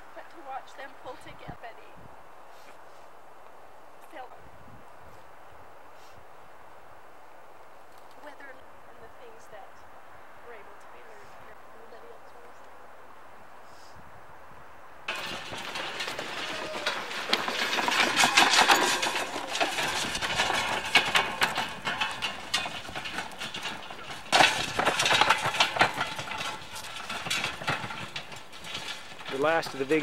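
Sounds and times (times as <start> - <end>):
wooden cart rattling on dirt: 15.1 - 30.0.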